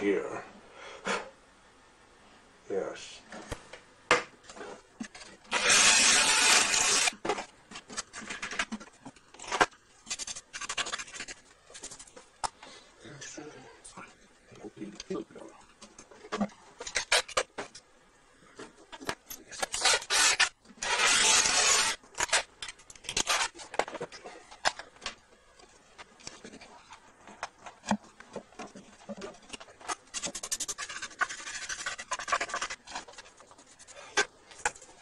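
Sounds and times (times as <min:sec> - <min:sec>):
scraping and rubbing: 0:04.5 - 0:12.4, 0:19.4 - 0:22.5, 0:25.4 - 0:35.0.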